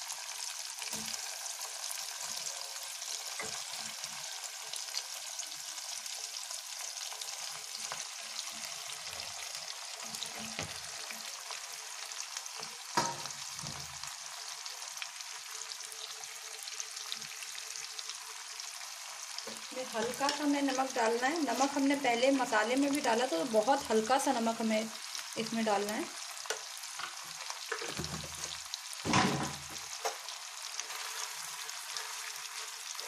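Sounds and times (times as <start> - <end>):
oil sizzling in a pan: 0.0 - 33.0
knocks against the pan: 13.0 - 13.9, 29.0 - 30.2.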